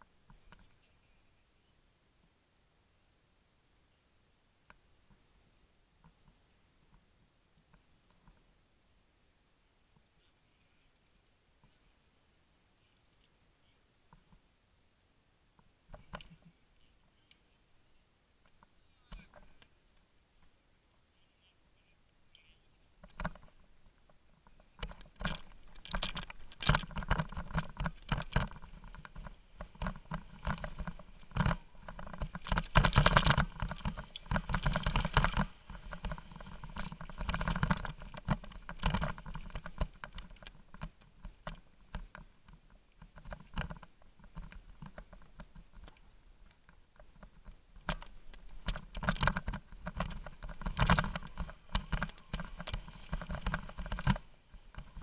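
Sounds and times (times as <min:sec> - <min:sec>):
bike rattling over bumps: 0:24.8 - 0:45.8, 0:46.6 - 0:55.0.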